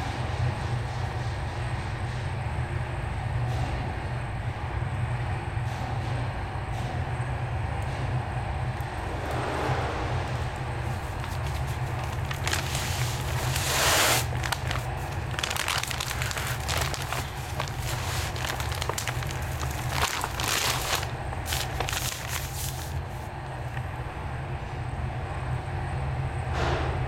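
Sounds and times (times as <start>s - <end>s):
steady low rumble: 7.7s - 25.7s
paper sack crinkling: 10.8s - 23.3s.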